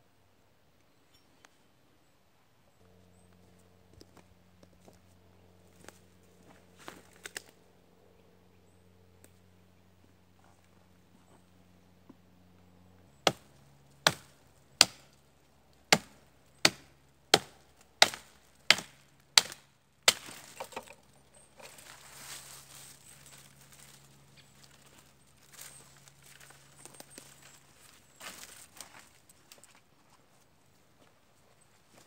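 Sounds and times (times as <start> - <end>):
twigs rustling and crackling: 5.7 - 7.7, 17.8 - 30.2
hatchet chopping wood: 13.2 - 15.1, 15.9 - 21.0.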